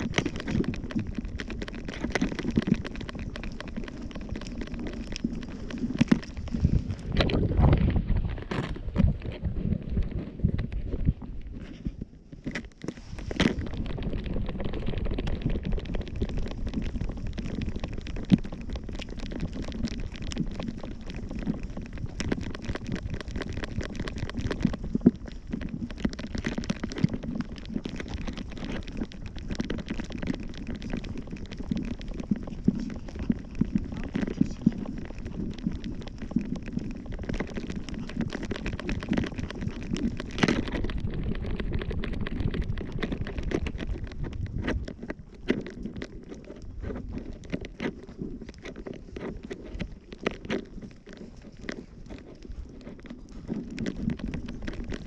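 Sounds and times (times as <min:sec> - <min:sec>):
low rumble: 0:00.0 - 0:12.2
fur rubbing on microphone: 0:12.8 - 0:17.3.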